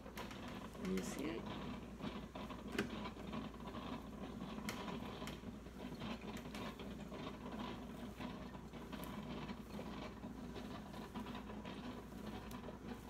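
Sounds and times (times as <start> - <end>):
coffee maker brewing hum: 0.0 - 13.0.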